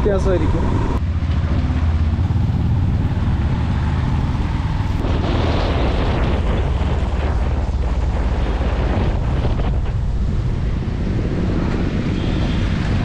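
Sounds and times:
vehicle engine and road rumble: 0:00.0 - 0:13.0
wind buffeting microphone: 0:00.0 - 0:13.0.

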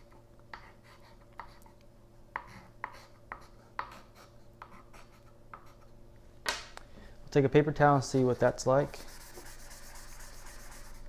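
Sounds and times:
chalk strokes and taps: 0:08.1 - 0:11.0.

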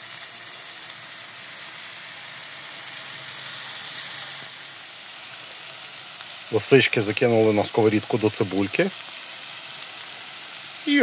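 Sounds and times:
onion sizzling in hot oil: 0:00.0 - 0:11.0.

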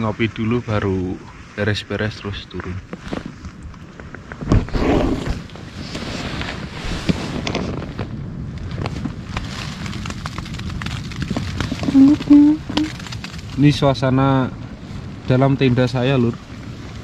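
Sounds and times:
strong wind buffeting a tent: 0:00.0 - 0:17.0
tent fabric flapping: 0:03.0 - 0:13.8.

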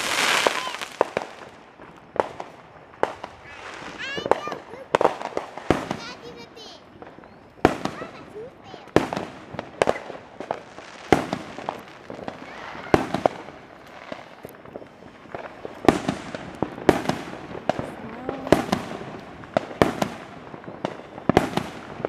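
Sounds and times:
distant fireworks bangs: 0:00.0 - 0:22.0.

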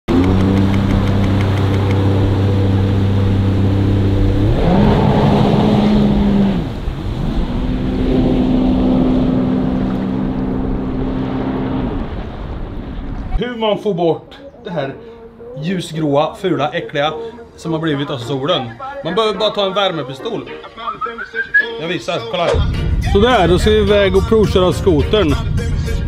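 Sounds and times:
jet ski engine revving: 0:00.1 - 0:12.2.

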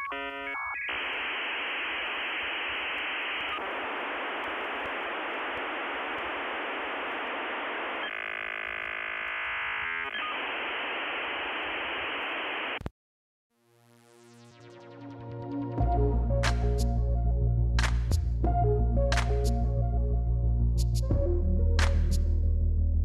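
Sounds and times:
static hiss: 0:00.0 - 0:12.9.

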